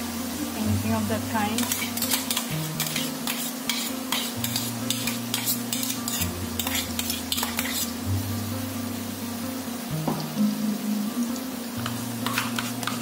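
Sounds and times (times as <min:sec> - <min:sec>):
food sizzling in hot oil: 0:00.0 - 0:13.0
stirring scraping a metal pan: 0:01.6 - 0:08.0, 0:11.8 - 0:13.0.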